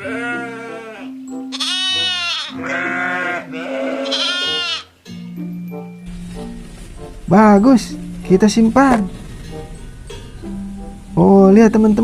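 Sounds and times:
lambs bleating: 0.0 - 5.0
background music: 0.0 - 12.0.

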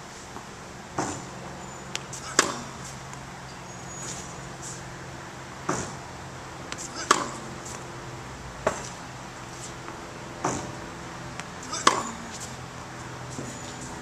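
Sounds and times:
tennis ball hits: 1.9 - 2.9, 5.6 - 6.1, 6.7 - 7.9, 8.6 - 9.0, 9.8 - 12.5.

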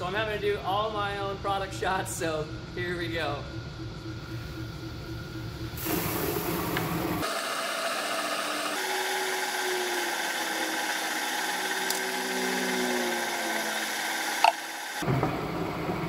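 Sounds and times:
grain mill motor whirring: 5.7 - 15.0.

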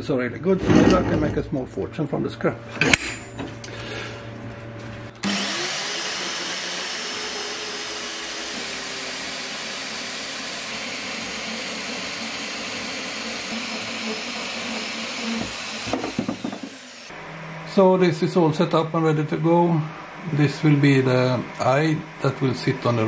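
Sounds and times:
band saw motor spinning up: 5.1 - 23.0
band saw cutting metal: 5.2 - 23.0.

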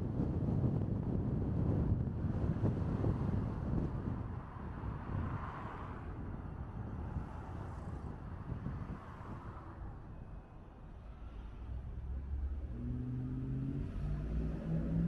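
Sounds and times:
wind buffeting microphone: 0.0 - 9.8
car road and engine rumble: 0.0 - 15.0.

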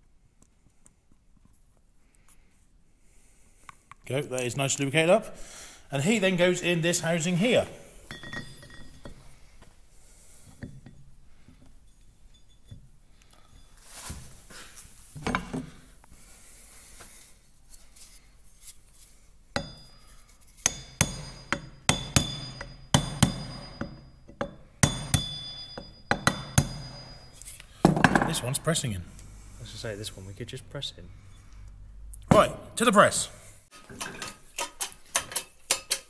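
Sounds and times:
handling metal parts: 7.2 - 16.0, 17.7 - 28.6, 33.7 - 36.0
hammer tapping on metal: 20.6 - 27.3.

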